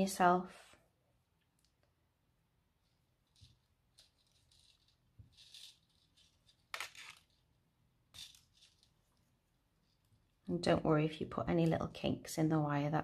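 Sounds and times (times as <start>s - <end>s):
wire rattling and scraping: 2.8s - 10.4s.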